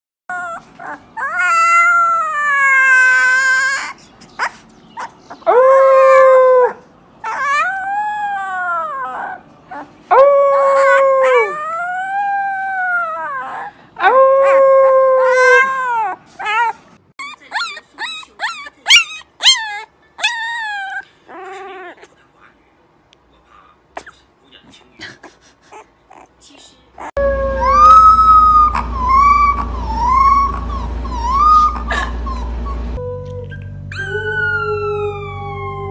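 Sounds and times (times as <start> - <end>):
puppies yipping: 0.3 - 9.9, 15.2 - 22.0, 27.0 - 35.9
puppies howling: 0.3 - 22.0, 27.0 - 35.9.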